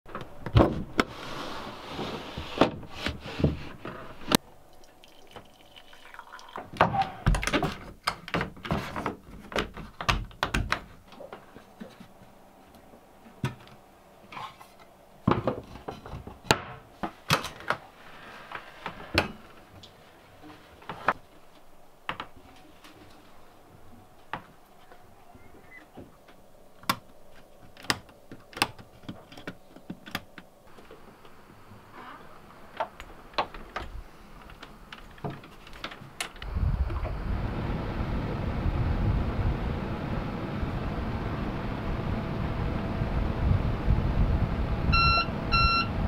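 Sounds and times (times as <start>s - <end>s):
water splashing and trickling: 4.6s - 6.8s.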